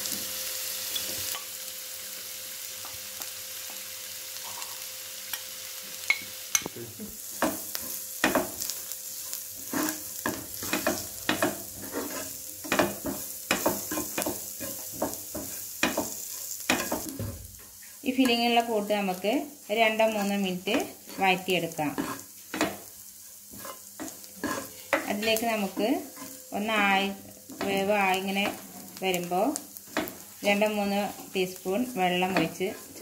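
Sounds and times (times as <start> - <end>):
onions sizzling in oil: 0.0 - 33.0
utensil scraping a pan: 9.2 - 17.0, 21.9 - 26.9.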